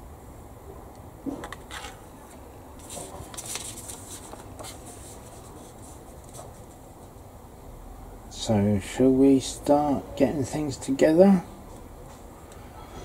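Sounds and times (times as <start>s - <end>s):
paper rustling: 2.8s - 7.1s.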